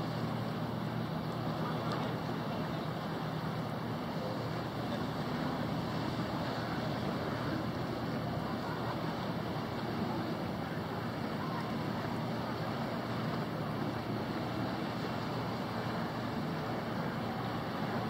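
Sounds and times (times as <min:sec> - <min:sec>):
choppy lake water: 0:00.0 - 0:18.0
motor yacht engine drone: 0:00.0 - 0:18.0.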